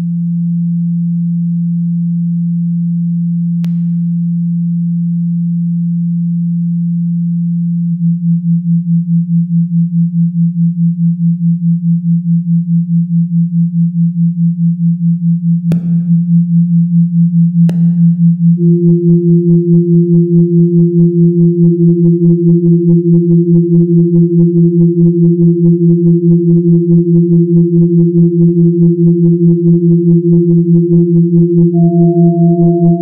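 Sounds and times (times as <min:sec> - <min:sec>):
steady low hum pulsing: 0:13.0 - 0:33.0.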